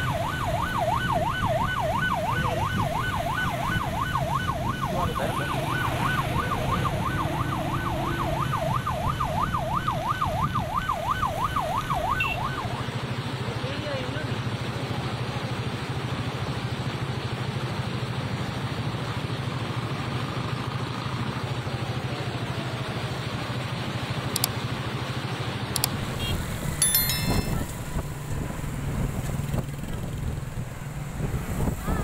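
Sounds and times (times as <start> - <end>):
road traffic: 0.0 - 32.0
motorcycles passing: 4.7 - 9.0.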